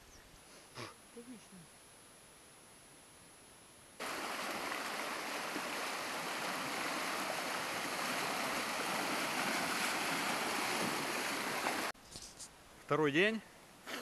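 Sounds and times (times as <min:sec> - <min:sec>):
river rushing over stones: 0:04.0 - 0:11.9
water around wading legs: 0:04.0 - 0:12.0.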